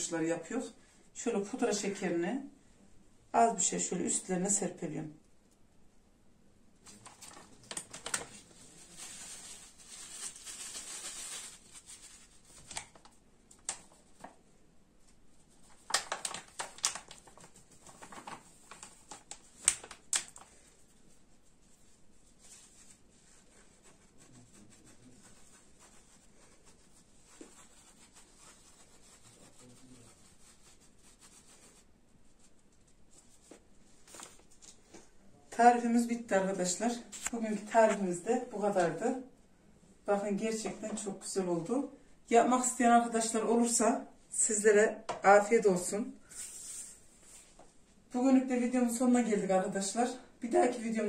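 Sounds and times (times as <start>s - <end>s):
plastic packet crinkling: 7.3s - 13.0s, 15.7s - 20.5s.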